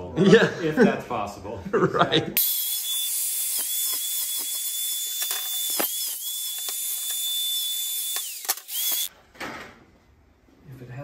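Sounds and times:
angle grinder grinding steel: 2.4 - 9.1.

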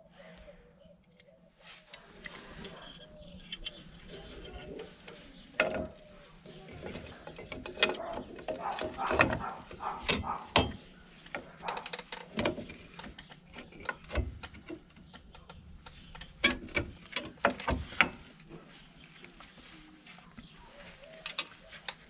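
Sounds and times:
metal clicks and clanks: 2.2 - 18.5.

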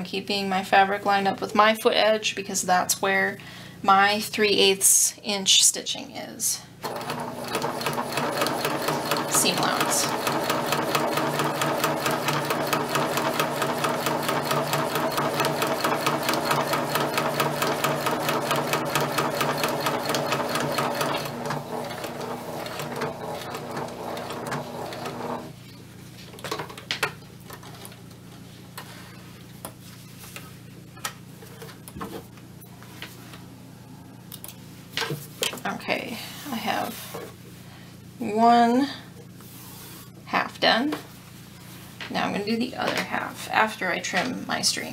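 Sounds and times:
sewing machine stitching: 6.8 - 25.5.

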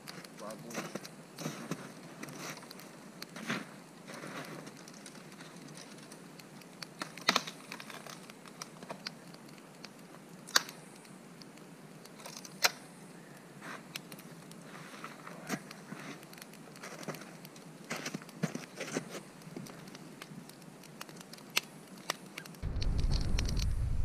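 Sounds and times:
rustling: 13.6 - 24.0
dry twigs snapping: 15.6 - 23.8.

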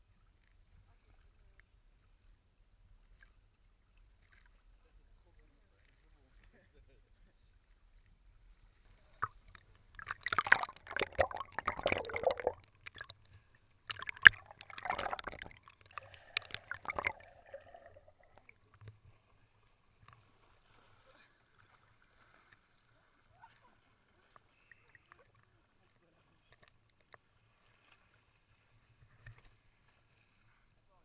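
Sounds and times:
water splashing against camera: 9.0 - 19.2.

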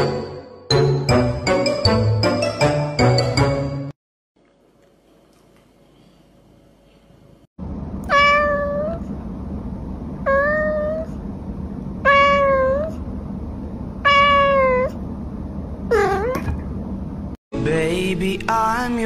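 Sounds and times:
low background hum: 4.4 - 17.4
cat meowing: 8.1 - 9.0, 10.2 - 11.1, 12.0 - 13.0, 14.0 - 15.0, 15.9 - 16.4.

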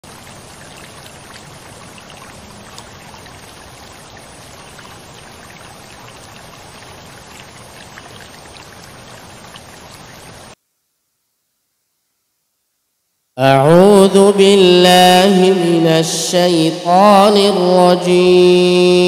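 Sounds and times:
running water rushing: 0.0 - 10.6.

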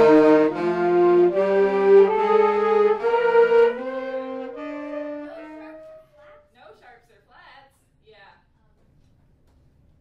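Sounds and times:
saxophones playing slowly: 0.0 - 6.4.

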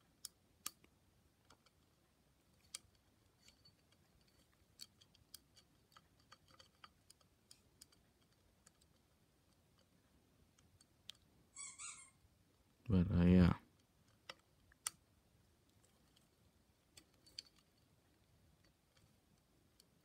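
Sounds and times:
fingers clicking and tapping wires: 2.6 - 9.9.

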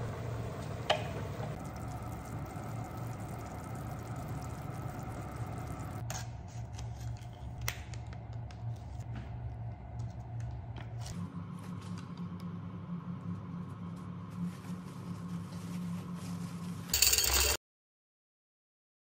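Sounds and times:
pot simmering: 0.0 - 6.0
low hum: 0.0 - 17.2.

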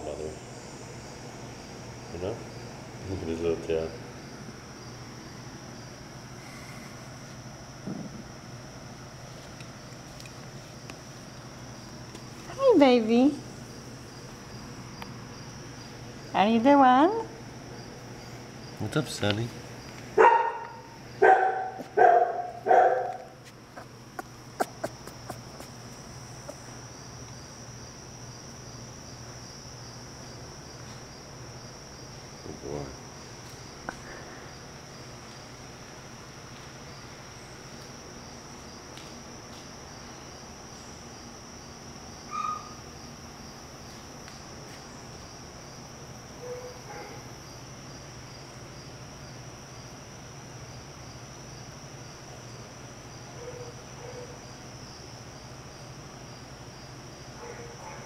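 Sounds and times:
crickets chirring: 0.0 - 58.0
puppy yelp: 42.3 - 42.8.

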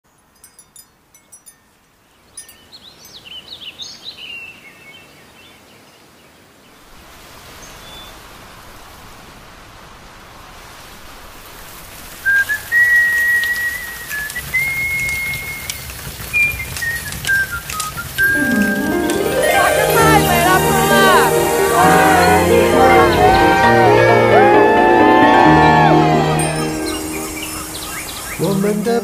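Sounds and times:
rain hissing: 8.2 - 29.0
whistled melody: 16.8 - 28.8
birds chirping: 25.2 - 28.8.

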